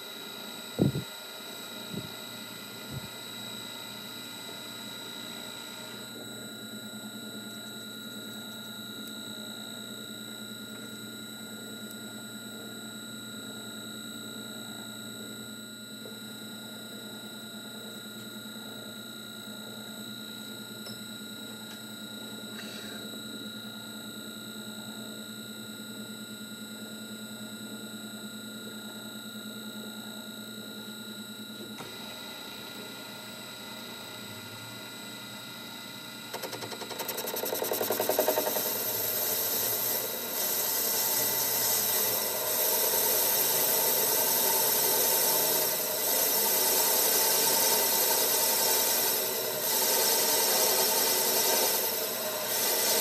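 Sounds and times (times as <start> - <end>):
metal lathe running: 36.3 - 53.0.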